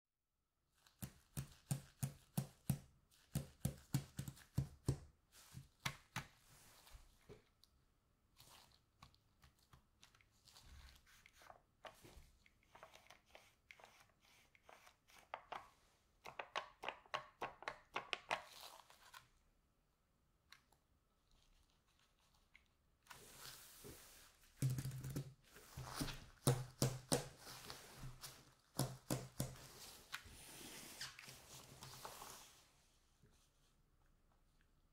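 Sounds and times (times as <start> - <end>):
gloves rustling: 25.4 - 32.8.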